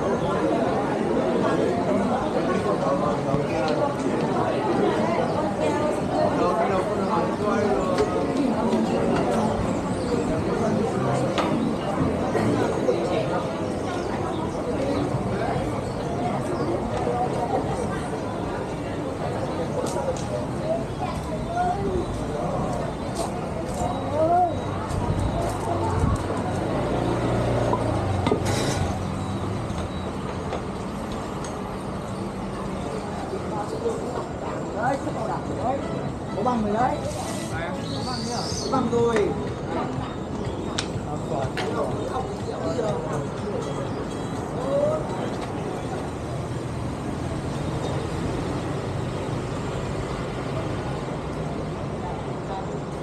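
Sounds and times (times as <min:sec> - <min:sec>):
city traffic rumble: 0:00.0 - 0:53.0.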